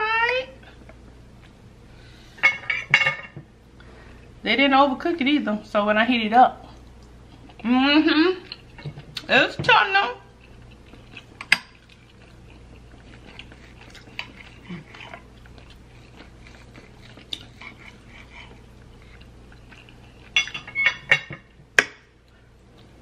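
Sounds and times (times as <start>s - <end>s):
cutlery scraping a plate: 2.4s - 3.4s, 20.2s - 21.5s
cutlery clinking: 20.3s - 21.5s.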